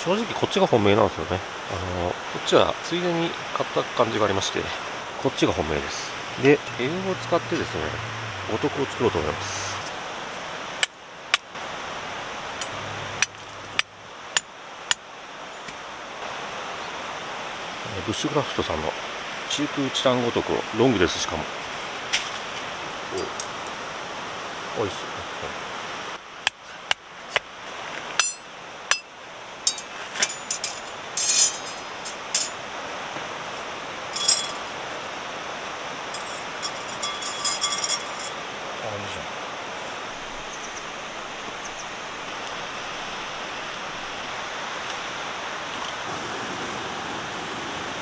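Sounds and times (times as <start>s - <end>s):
steady rushing noise: 1.2s - 19.7s
steel pegs clinking: 12.5s - 15.0s, 28.2s - 32.6s, 34.1s - 34.8s, 36.1s - 38.5s.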